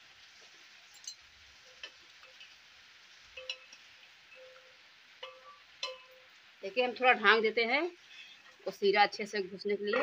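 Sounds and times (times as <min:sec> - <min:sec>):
metal spatula clinking on pot: 0:00.9 - 0:02.6, 0:03.3 - 0:06.3.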